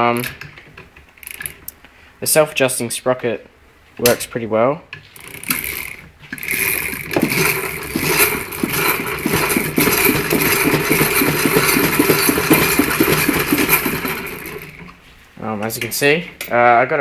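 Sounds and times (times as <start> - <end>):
drive chain rattling: 0.0 - 1.7, 5.2 - 15.0.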